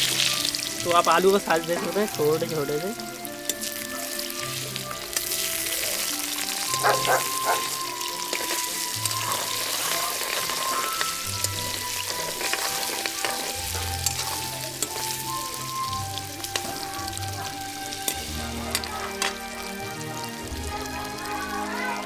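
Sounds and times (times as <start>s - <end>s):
potatoes sizzling in oil: 0.0s - 22.0s
metal ladle scraping a pan: 3.2s - 19.4s.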